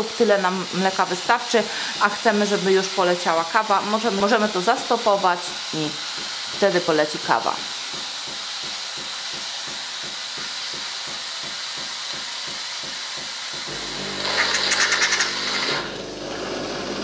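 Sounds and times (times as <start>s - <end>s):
pump pulsing: 4.3s - 17.0s
espresso machine frothing milk: 13.6s - 17.0s
coffee grinder rattling: 14.3s - 15.8s.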